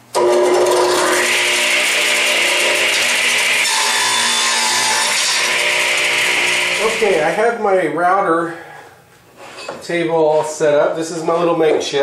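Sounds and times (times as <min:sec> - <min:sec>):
saw cutting wood: 0:00.1 - 0:07.4.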